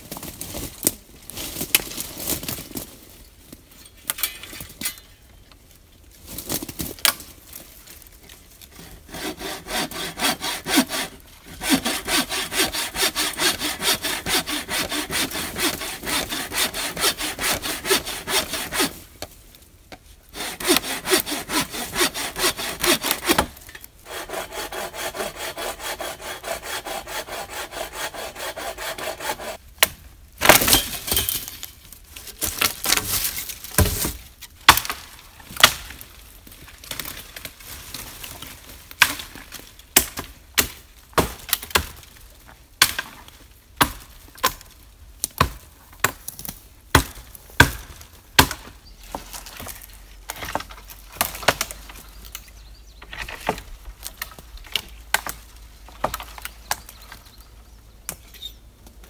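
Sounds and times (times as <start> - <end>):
hand saw cutting wood: 8.7 - 19.0, 20.3 - 29.6
dry wood cracking and snapping: 29.8 - 42.2, 49.1 - 57.5.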